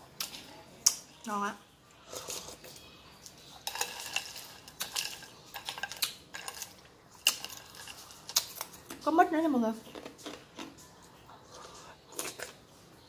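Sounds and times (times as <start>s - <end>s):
close eating sounds: 0.0s - 13.0s
metal spoon scraping ice: 2.0s - 8.7s.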